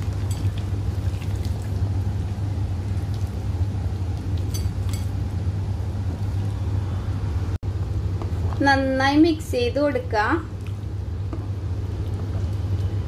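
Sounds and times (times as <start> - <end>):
curry bubbling: 0.0 - 7.1, 10.4 - 13.0
low hum: 0.0 - 13.0.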